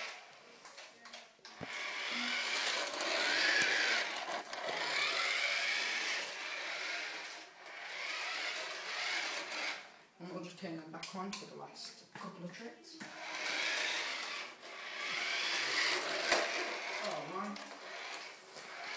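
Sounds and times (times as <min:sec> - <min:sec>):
toy car electric motor whirring: 0:00.0 - 0:00.3, 0:01.5 - 0:09.9, 0:13.1 - 0:18.9.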